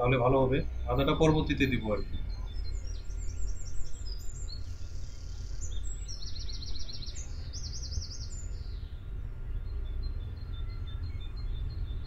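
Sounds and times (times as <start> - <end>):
small bird singing: 0.0 - 12.0.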